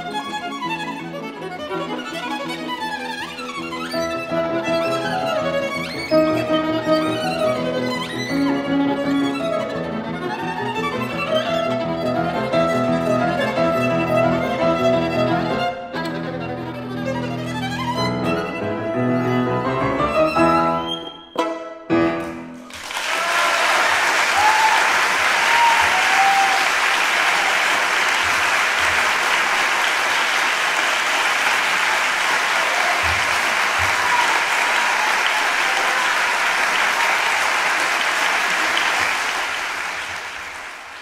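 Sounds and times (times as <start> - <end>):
violin: 0.0 - 22.4
grand piano chords: 18.1 - 22.7
audience applause: 22.6 - 41.0.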